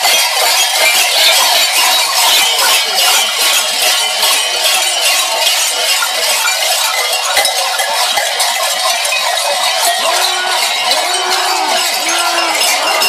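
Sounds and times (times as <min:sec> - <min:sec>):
cowbells jangling: 0:00.0 - 0:13.0.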